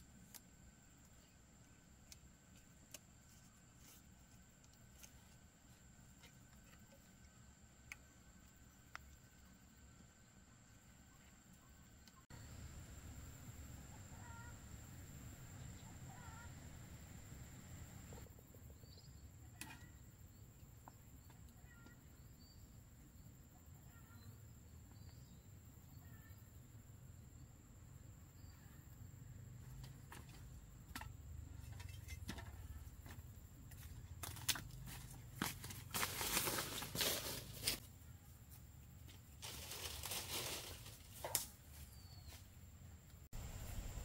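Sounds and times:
faint bird chirps: 13.9 - 14.6, 15.5 - 16.6, 18.2 - 27.5, 41.8 - 42.6.

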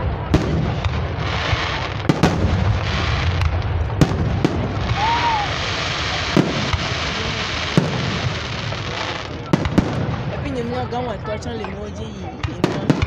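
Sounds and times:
crackling fireworks stars: 0.0 - 13.0
fireworks bangs: 0.0 - 13.0
low rumble: 2.2 - 5.8.

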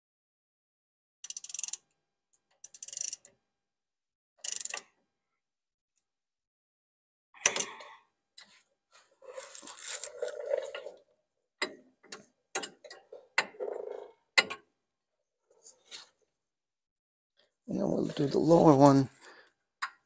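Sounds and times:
ratchet rattling: 1.2 - 1.8, 2.6 - 3.3, 4.4 - 4.9
ratchet clicks: 1.2 - 1.9, 2.6 - 3.3, 4.4 - 4.9.

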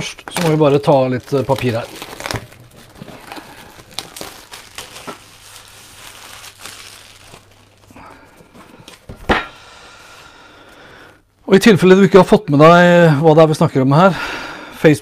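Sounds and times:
plastic shrink-wrap crinkling: 0.0 - 9.1.

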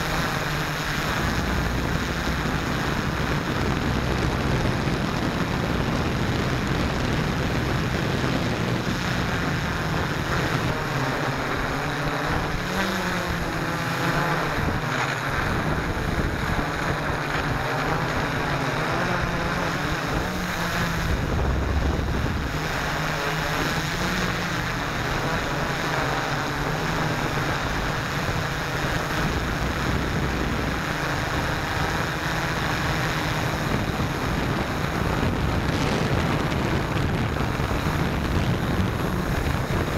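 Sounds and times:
drone propellers humming: 0.0 - 39.9
wind rushing over microphone: 0.0 - 39.9.

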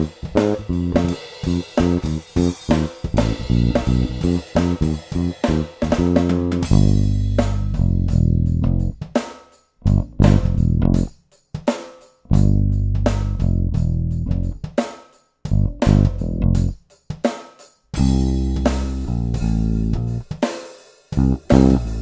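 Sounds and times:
plucked electric bass: 0.0 - 9.0, 9.8 - 11.1, 12.3 - 14.7, 15.5 - 16.8, 18.0 - 20.2, 21.2 - 22.0
electronic drum beat: 0.0 - 17.4, 18.0 - 20.6, 21.2 - 22.0.

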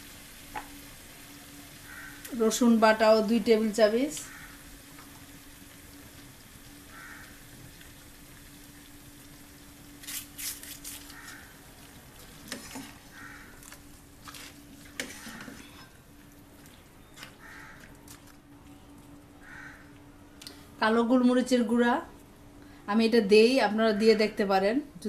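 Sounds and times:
spoon scraping a pan: 12.4 - 16.0.

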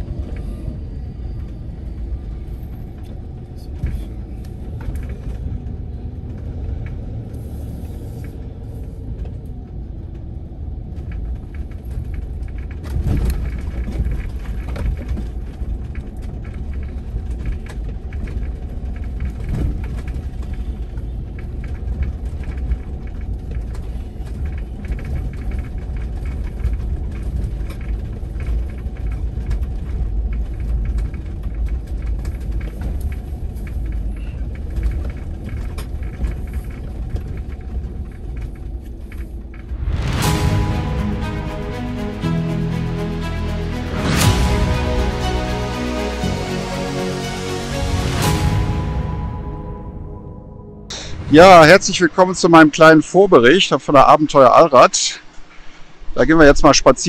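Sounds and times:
faint engine hum: 0.0 - 40.4
vehicle rumble driving slowly: 0.0 - 41.0.

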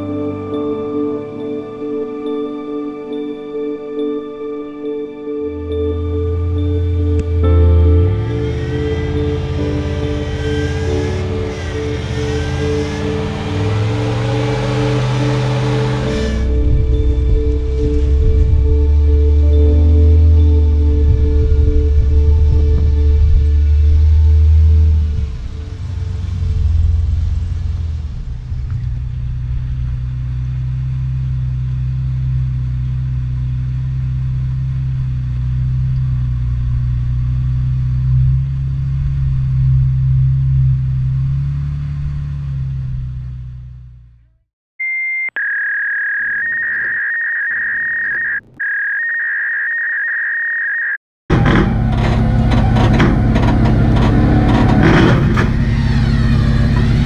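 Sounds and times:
background music: 0.0 - 27.4
off-road vehicle engine running: 6.0 - 44.4, 51.3 - 57.0
high electronic tone: 44.8 - 51.0.

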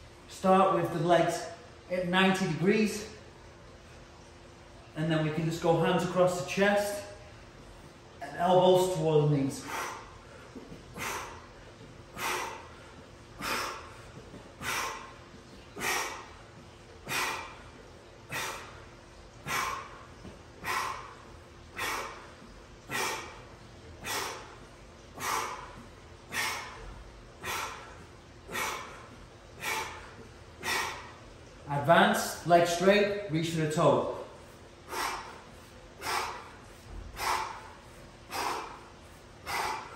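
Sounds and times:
man exhaling hard: 34.8 - 39.9.

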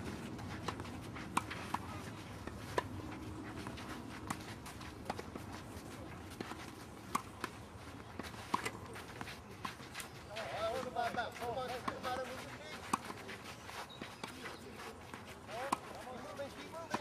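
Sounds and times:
tennis ball bouncing on clay: 0.0 - 17.0
racket hitting tennis ball: 6.4 - 7.6, 8.2 - 9.3.

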